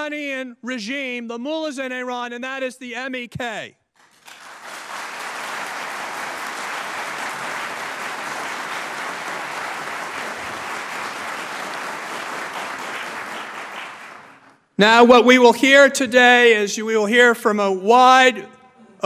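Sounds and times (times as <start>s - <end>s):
audience applauding: 4.0s - 14.6s.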